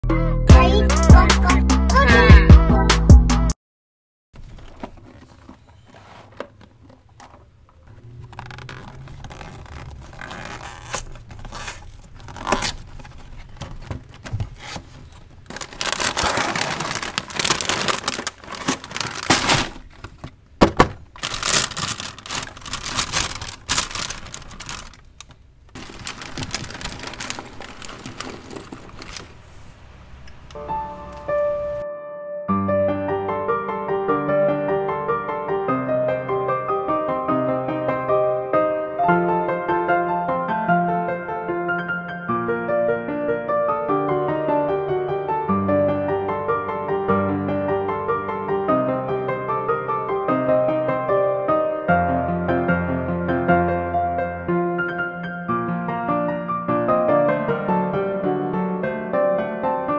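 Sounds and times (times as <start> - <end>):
plastic wrapper crinkling: 4.4 - 31.8
cardboard box tearing: 8.1 - 25.1, 25.7 - 29.4.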